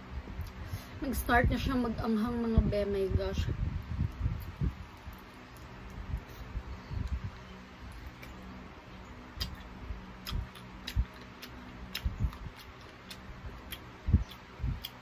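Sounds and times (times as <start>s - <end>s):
mouth clicks and smacks: 9.3s - 15.0s
person chewing and gnawing: 9.4s - 15.0s.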